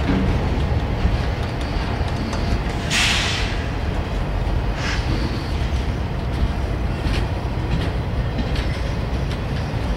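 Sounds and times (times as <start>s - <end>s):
train wheels rumbling on rail: 0.0s - 9.9s
wheel clacks: 5.1s - 9.9s.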